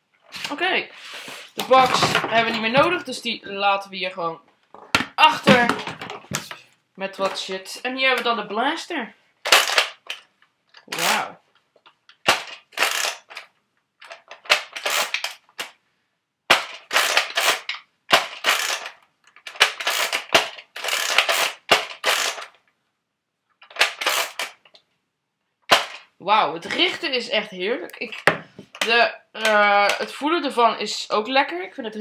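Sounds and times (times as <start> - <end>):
toy blaster plastic clacks: 9.5 - 11.3, 12.1 - 15.8, 16.5 - 22.6, 23.6 - 24.8, 25.7 - 26.1.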